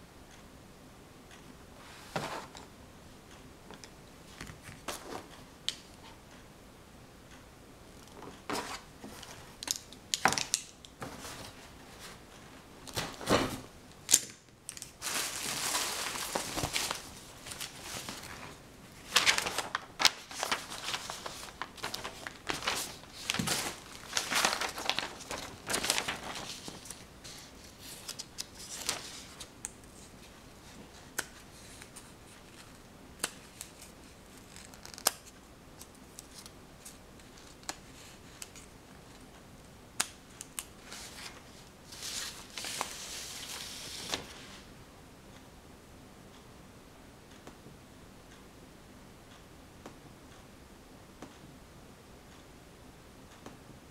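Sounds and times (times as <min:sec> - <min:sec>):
crinkling and rustling: 0:01.9 - 0:02.7, 0:03.7 - 0:06.2, 0:08.0 - 0:39.4, 0:40.5 - 0:44.7.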